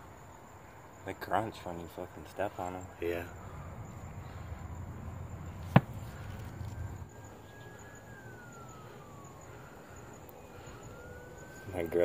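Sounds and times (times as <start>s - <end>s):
distant siren wailing: 1.9s - 12.0s
sharp knock: 5.7s - 6.0s.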